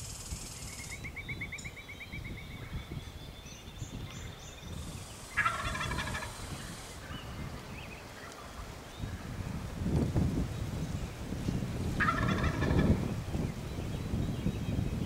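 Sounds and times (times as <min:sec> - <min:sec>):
songbird high trill: 0:00.0 - 0:07.3
turkey gobbling: 0:05.4 - 0:06.5, 0:12.0 - 0:13.0.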